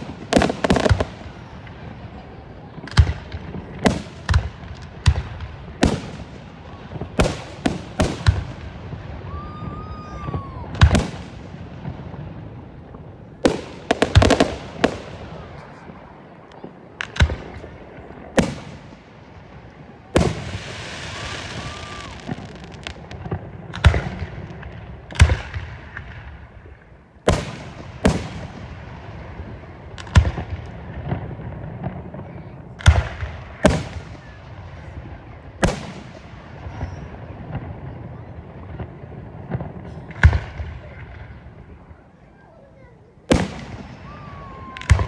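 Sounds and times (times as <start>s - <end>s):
fireworks bangs: 0.0s - 45.0s
fireworks hiss: 20.2s - 23.2s.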